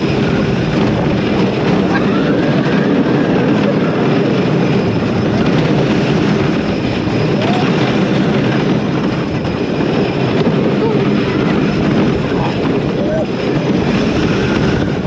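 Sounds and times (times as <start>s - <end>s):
roller coaster wheels rumbling: 0.0s - 15.0s
wind rushing over microphone: 0.0s - 15.0s.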